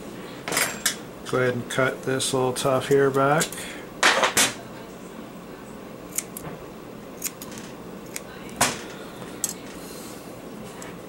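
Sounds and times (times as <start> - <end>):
scissors snipping: 6.1 - 6.4, 7.2 - 7.5.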